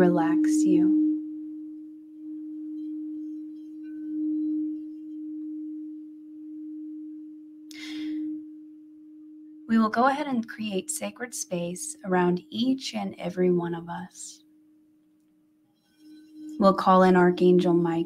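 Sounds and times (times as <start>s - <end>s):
crystal singing bowl ringing: 0.0s - 10.5s, 15.8s - 18.0s.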